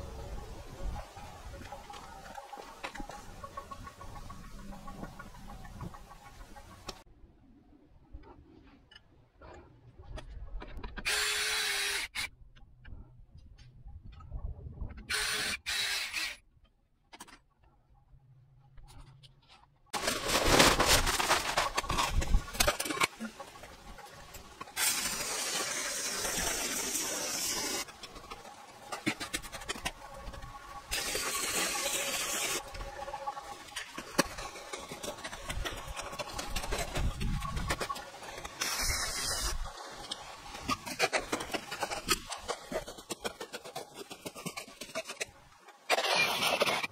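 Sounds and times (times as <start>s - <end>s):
hose water pouring into wheelbarrow: 20.0s - 45.2s.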